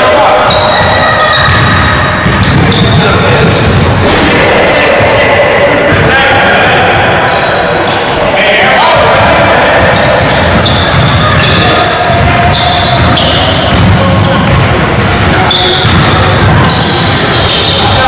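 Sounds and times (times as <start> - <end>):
voices echoing in hall: 0.0 - 18.0
basketball bouncing on hardwood: 13.0 - 16.6.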